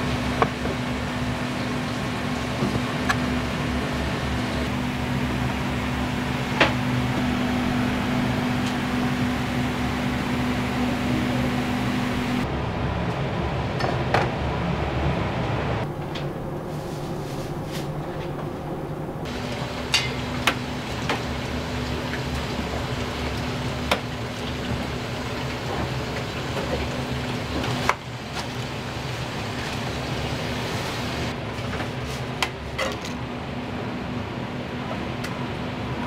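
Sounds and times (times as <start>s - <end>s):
cooking equipment din: 19.3s - 31.3s.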